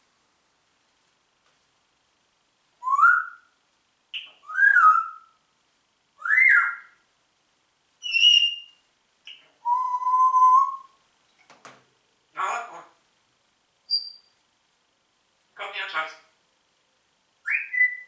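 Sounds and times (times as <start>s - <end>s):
parrot whistling: 2.8s - 3.5s, 4.2s - 5.3s, 6.2s - 7.0s, 8.0s - 11.0s, 13.9s - 14.3s, 17.4s - 18.0s.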